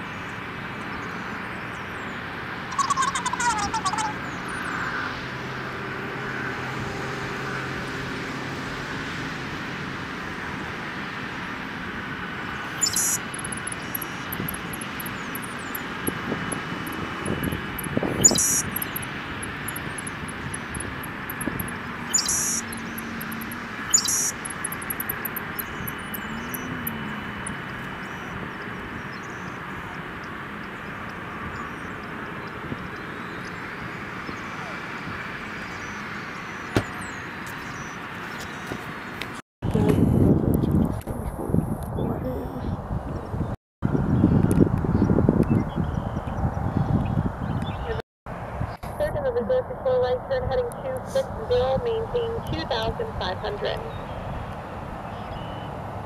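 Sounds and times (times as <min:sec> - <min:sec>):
jet engines idling: 0:10.3 - 0:39.4
high-pitched chirps: 0:12.7 - 0:28.4.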